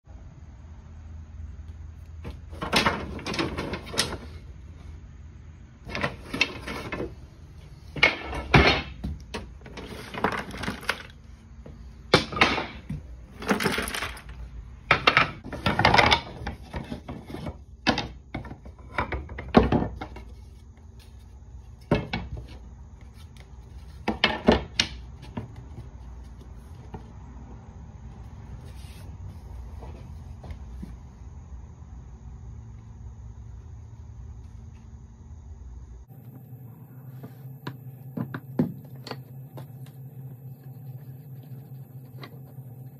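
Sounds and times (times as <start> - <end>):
wooden pieces clattering: 2.2 - 4.4, 5.8 - 7.2, 8.0 - 11.2, 12.1 - 20.4, 23.8 - 25.9.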